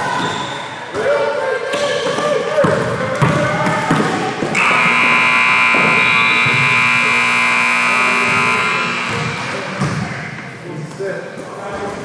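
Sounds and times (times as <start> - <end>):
scoreboard buzzer: 4.6 - 9.8.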